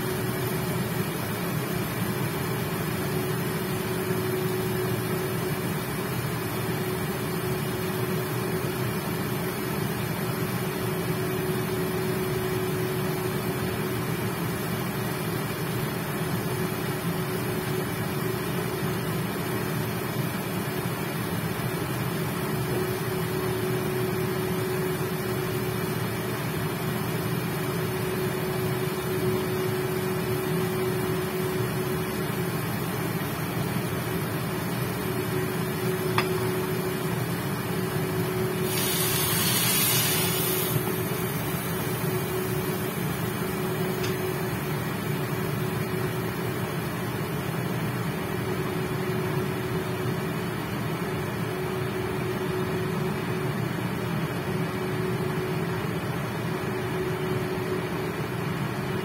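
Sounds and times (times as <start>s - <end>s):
constant fan tone: 0.0s - 59.0s
induction cooktop humming: 0.0s - 59.0s
chicken cooking in covered pan: 38.6s - 40.9s
small click: 44.0s - 44.2s.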